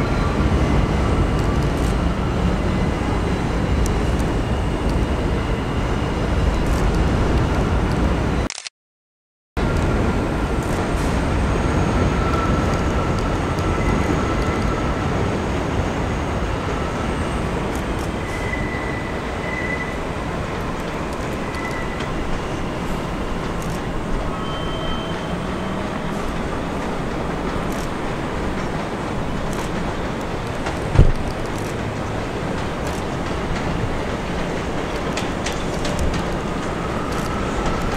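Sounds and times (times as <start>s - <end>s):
subway train rumbling: 0.0s - 8.5s, 9.6s - 37.9s
high wheel squeals: 18.2s - 27.0s.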